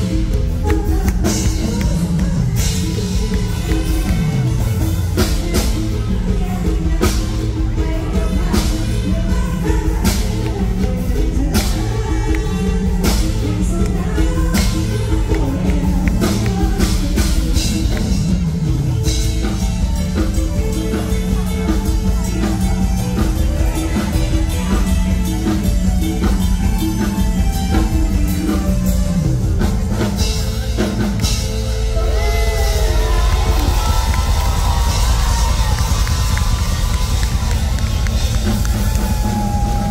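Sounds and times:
person singing: 0.0s - 37.8s
drum kit beat: 0.0s - 39.9s
live band music: 0.0s - 39.9s
crowd cheering: 30.0s - 39.9s.

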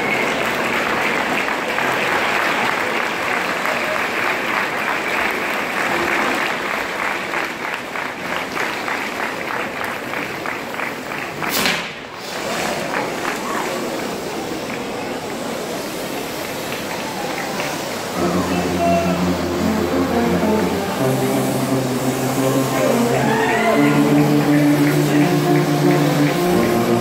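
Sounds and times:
crowd applauding: 0.0s - 27.0s
sudden loud burst of noise: 11.4s - 14.8s, 15.5s - 27.0s.

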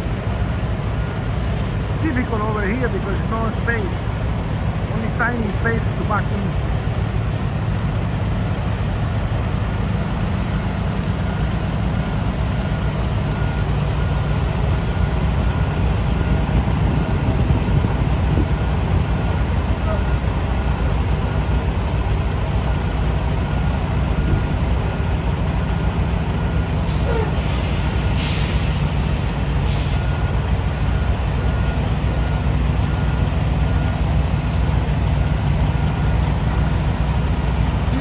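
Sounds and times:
truck diesel engine running: 0.0s - 38.0s
air brakes hissing: 26.8s - 30.2s.

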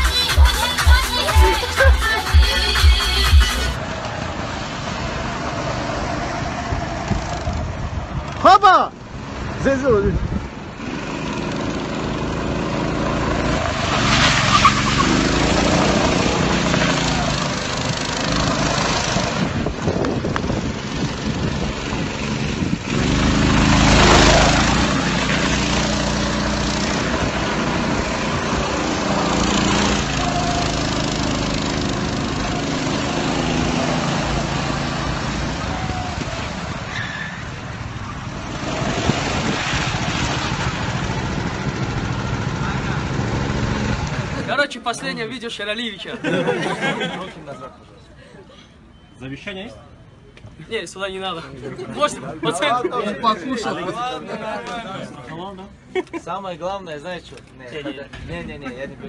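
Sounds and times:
loud rushing noise: 10.4s - 44.4s
small petrol engine revving: 10.8s - 36.9s, 37.7s - 44.5s.

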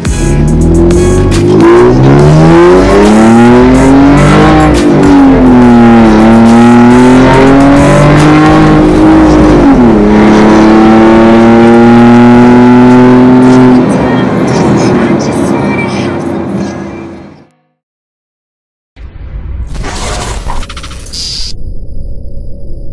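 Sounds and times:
car engine accelerating: 0.1s - 15.4s.

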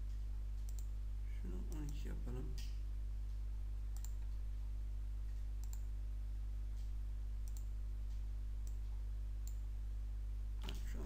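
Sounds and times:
low electrical hum: 0.0s - 11.0s
computer mouse clicking: 0.6s - 0.9s, 4.0s - 4.4s, 5.6s - 5.9s, 7.4s - 9.6s.

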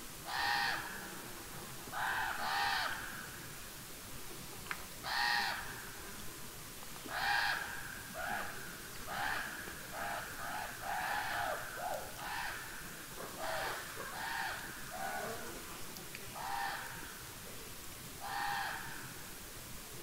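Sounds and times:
crows cawing: 0.3s - 1.0s, 2.0s - 3.0s, 5.1s - 5.7s, 7.1s - 8.5s, 9.1s - 12.8s, 13.4s - 15.2s, 16.4s - 17.0s, 18.2s - 19.0s.

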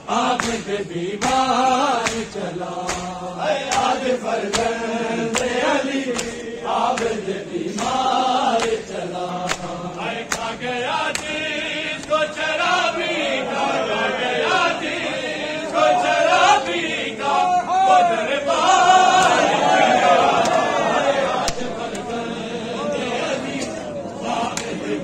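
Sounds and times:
men chanting a lament: 0.0s - 25.0s
chest-beating slaps: 0.2s - 12.3s, 21.4s - 22.1s, 24.5s - 24.8s.

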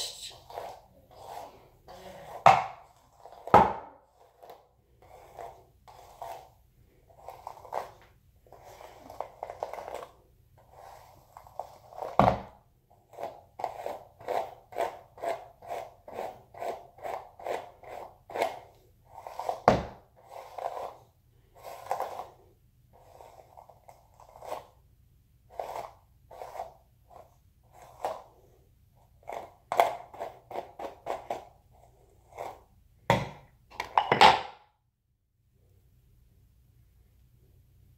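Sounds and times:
hairbrush strokes through hair: 0.0s - 2.4s, 4.1s - 12.2s, 13.1s - 24.8s, 25.5s - 28.5s.

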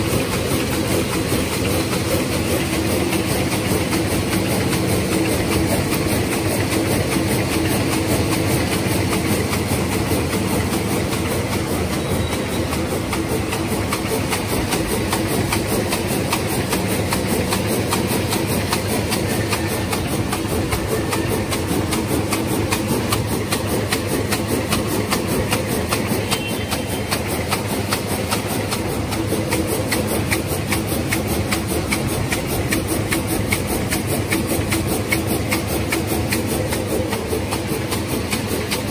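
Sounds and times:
constant machine drone: 0.0s - 38.9s
machine clattering: 0.0s - 38.9s.

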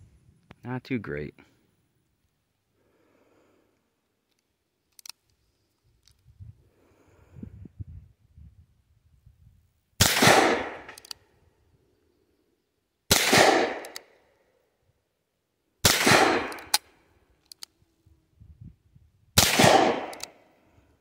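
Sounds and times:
revolver shots ringing out: 13.1s - 13.9s, 19.4s - 20.2s
short sharp clicks: 20.1s - 20.4s.

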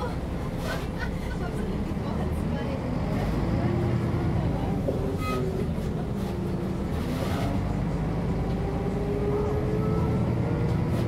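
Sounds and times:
bus diesel engine running: 0.0s - 11.0s.

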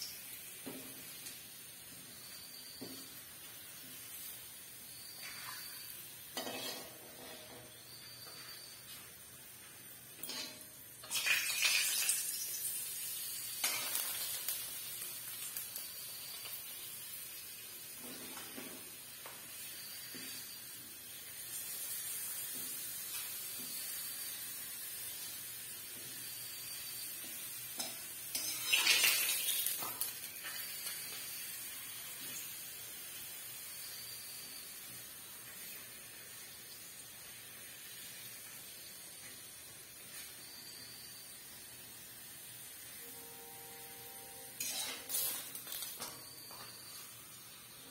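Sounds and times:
papad sizzling in a wok: 0.0s - 47.9s
metal spatula scraping wok: 5.2s - 8.6s, 10.2s - 10.7s, 27.8s - 29.0s, 44.6s - 46.0s.

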